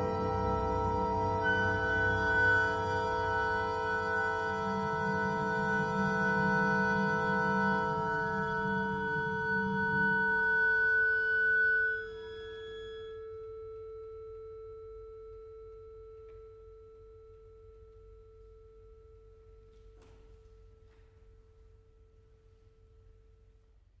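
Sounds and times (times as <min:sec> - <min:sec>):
ringing bell-like metallic tone: 0:00.0 - 0:15.0.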